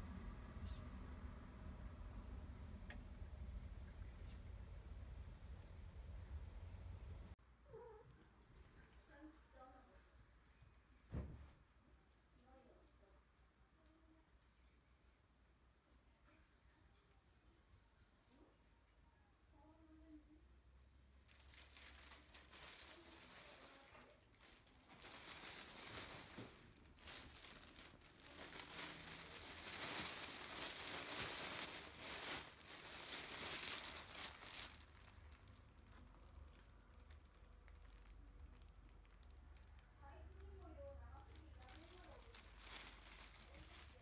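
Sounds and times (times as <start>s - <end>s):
plastic bag crinkling: 21.2s - 44.0s.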